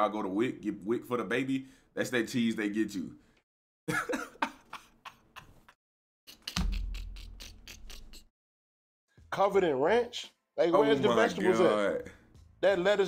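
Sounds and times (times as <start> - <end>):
man laughing: 3.9 - 5.8.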